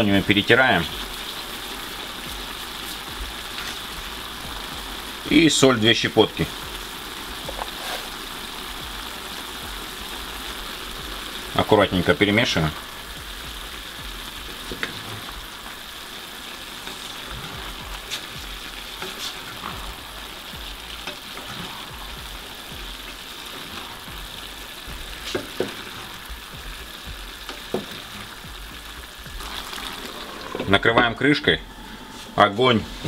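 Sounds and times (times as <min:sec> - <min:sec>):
food sizzling in a frying pan: 0:00.0 - 0:33.0
spatula knocking and scraping pan: 0:07.5 - 0:08.1, 0:16.9 - 0:20.0, 0:24.9 - 0:28.2.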